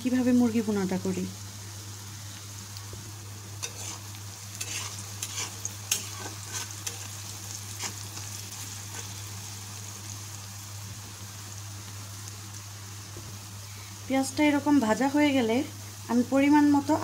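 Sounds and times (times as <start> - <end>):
onions sizzling in hot oil: 0.0 - 17.0
metal spoon scraping a wok: 3.6 - 8.3.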